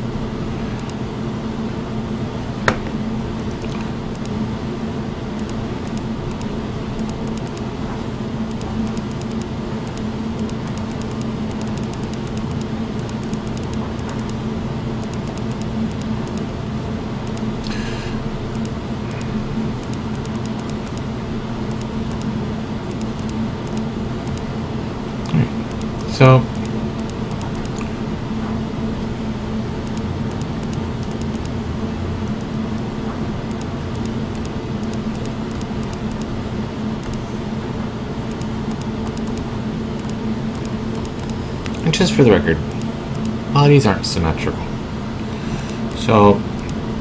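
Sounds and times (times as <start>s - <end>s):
low mechanical hum: 0.0s - 47.0s
sharp click: 0.8s - 1.0s, 18.5s - 18.8s, 19.8s - 21.1s, 29.9s - 31.5s, 37.0s - 37.2s, 38.3s - 39.4s, 40.0s - 41.8s, 42.7s - 43.4s.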